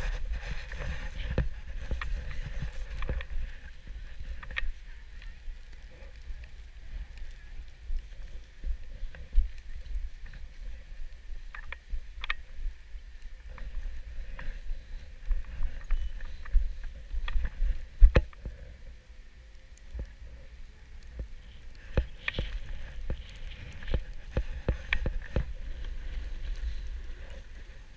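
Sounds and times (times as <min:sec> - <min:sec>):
snowboard sliding over snow: 0:00.0 - 0:05.2, 0:22.0 - 0:27.9
wind buffeting microphone: 0:00.0 - 0:18.6, 0:21.2 - 0:27.9.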